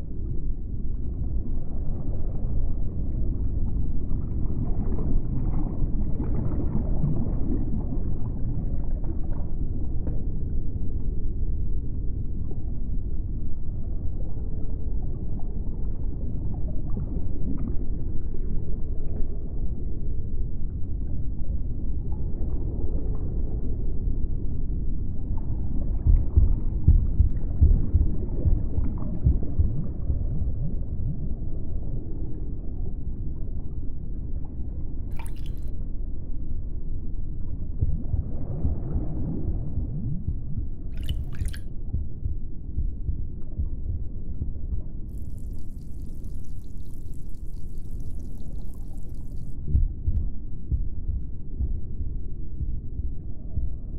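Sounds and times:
deep continuous rumble: 0.0s - 53.9s
wet squishing and gurgling: 35.1s - 35.7s, 40.9s - 41.7s, 45.1s - 49.6s.

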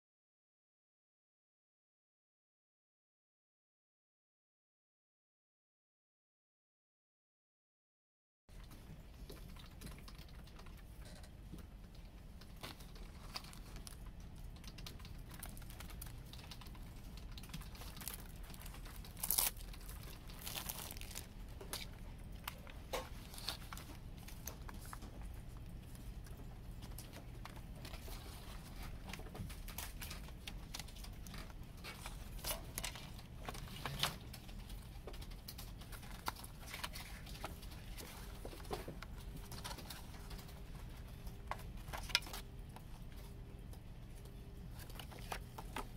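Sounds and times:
faint steady hum: 8.5s - 45.9s
wrapping crinkling and tearing: 12.4s - 26.0s, 26.8s - 41.0s.

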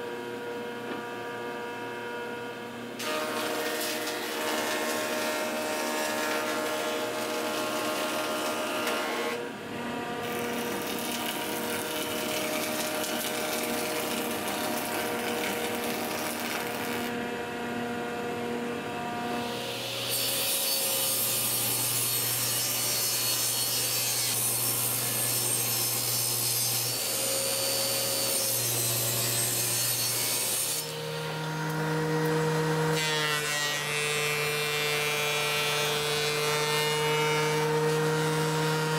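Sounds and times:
thickness planer planing board: 3.0s - 38.9s
wood rasping on cutter: 10.2s - 17.1s.

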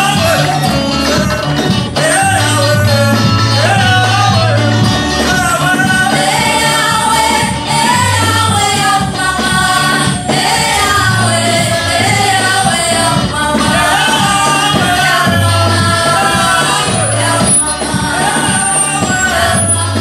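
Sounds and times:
man singing: 0.0s - 6.8s, 10.9s - 20.0s
bass notes: 0.0s - 20.0s
electric guitar: 0.0s - 20.0s
women singing together: 5.6s - 20.0s.

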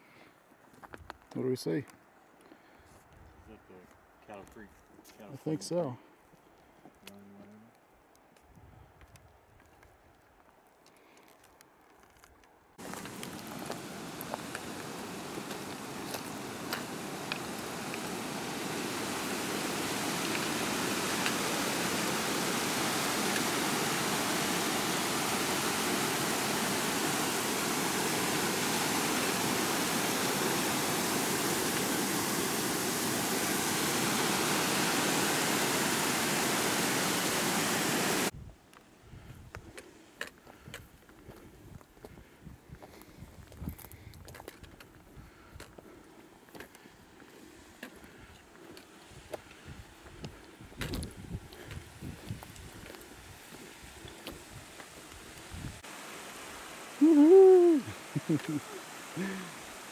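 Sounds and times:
creek water rushing over rocks: 12.8s - 38.3s, 52.8s - 59.9s.

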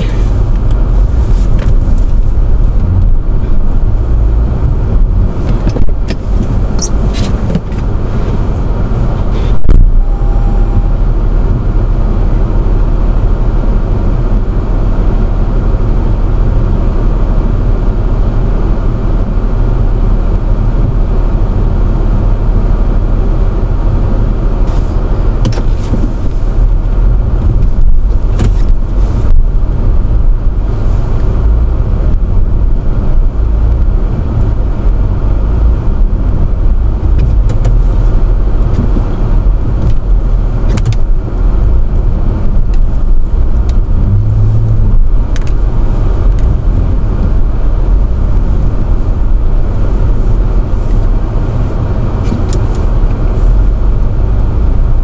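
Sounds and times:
car engine straining in snow: 0.0s - 55.0s
short knocks or scrapes: 5.3s - 8.5s.

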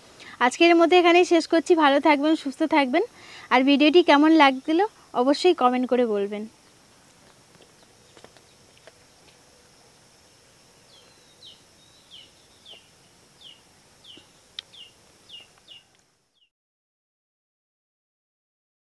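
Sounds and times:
faint rural ambience: 0.0s - 16.5s
small bird chirping: 10.8s - 16.5s.

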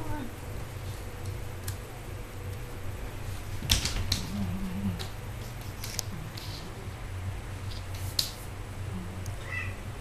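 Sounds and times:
low wavering hum: 0.0s - 10.0s.

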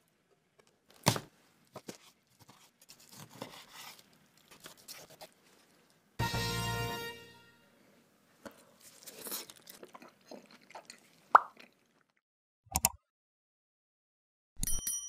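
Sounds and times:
person chewing steak: 8.8s - 12.1s
bell-like ding: 14.6s - 15.0s.

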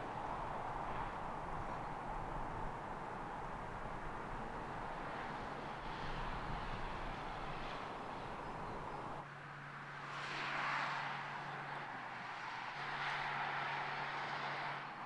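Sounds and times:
car tyre and road noise: 0.0s - 15.0s.

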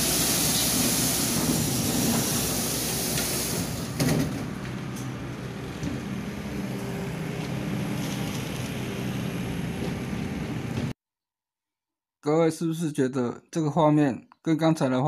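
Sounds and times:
low outdoor rumble: 0.8s - 11.0s.

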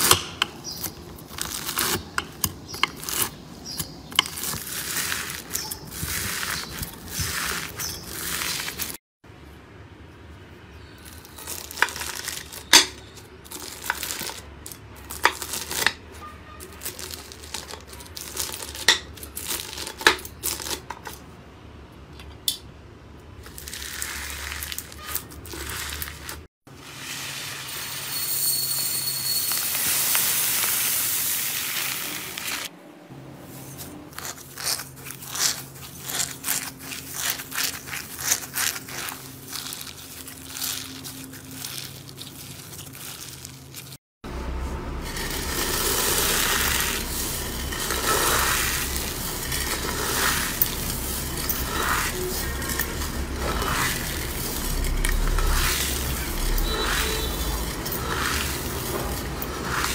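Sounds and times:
slime crunching and crackling: 0.0s - 9.0s, 11.0s - 20.9s, 23.4s - 26.5s, 34.1s - 44.0s, 45.0s - 59.9s.

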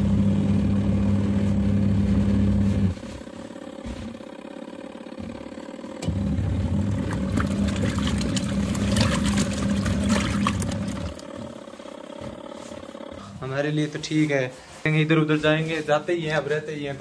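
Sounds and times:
washing machine motor churning: 0.0s - 17.0s
water splashing and clatter: 6.9s - 11.4s.

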